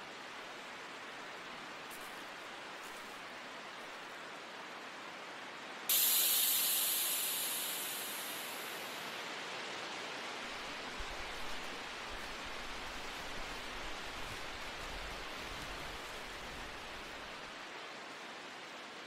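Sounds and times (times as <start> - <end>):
steady background hiss: 0.0 - 19.0
sudden loud high hiss: 5.9 - 9.3.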